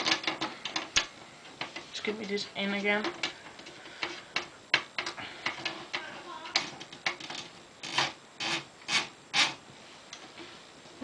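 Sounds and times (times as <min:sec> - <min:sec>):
typewriter roller clicks and scrapes: 0:05.5 - 0:09.6.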